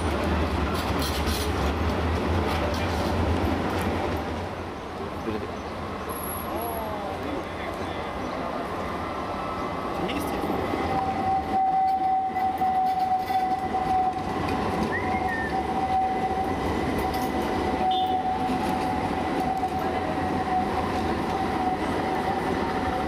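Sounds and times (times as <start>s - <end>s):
tram wheels rumbling on track: 0.0s - 23.0s
high-pitched tram whine: 7.9s - 23.0s.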